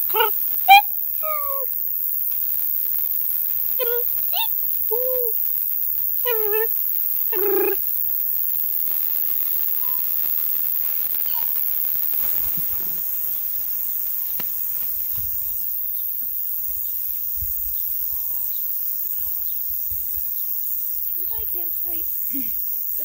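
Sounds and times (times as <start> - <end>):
steady high hiss: 0.0 - 23.0
faint short bird calls: 12.2 - 15.6.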